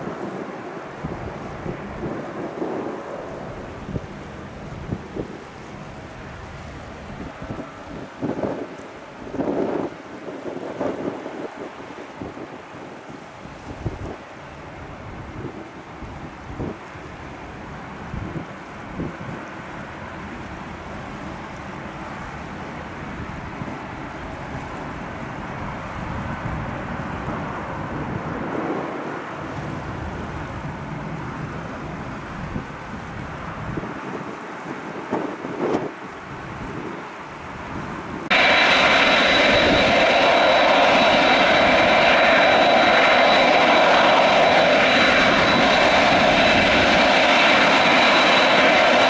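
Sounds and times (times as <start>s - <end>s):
jet engine noise: 0.0s - 49.0s
wind buffeting microphone: 0.0s - 49.0s
low rumbling haze: 36.4s - 49.0s.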